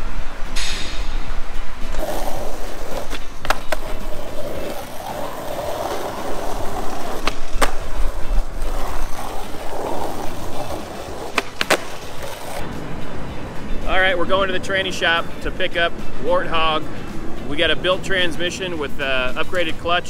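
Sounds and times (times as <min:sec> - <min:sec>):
skateboard wheels rolling on asphalt: 0:01.2 - 0:13.7.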